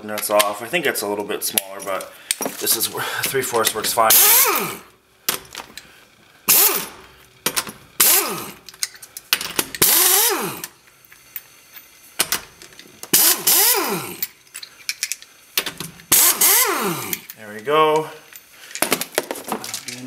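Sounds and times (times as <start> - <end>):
impact wrench air hiss: 2.2 - 7.3, 8.0 - 10.9, 13.1 - 17.3
air motor whine: 9.6 - 14.5, 15.7 - 18.2.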